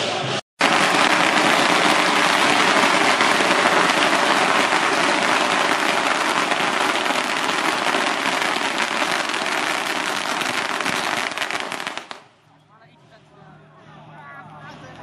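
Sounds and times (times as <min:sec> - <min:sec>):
string of firecrackers crackling: 0:00.6 - 0:12.4.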